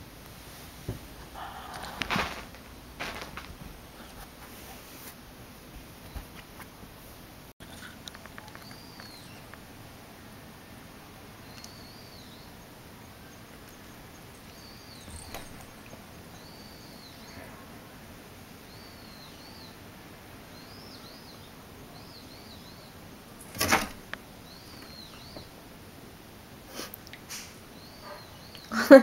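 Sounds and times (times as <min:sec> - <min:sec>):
steady low hiss: 0:00.0 - 0:29.0
bird chirping: 0:07.7 - 0:09.6, 0:11.4 - 0:17.8, 0:18.6 - 0:19.9, 0:20.5 - 0:25.6, 0:27.7 - 0:28.9.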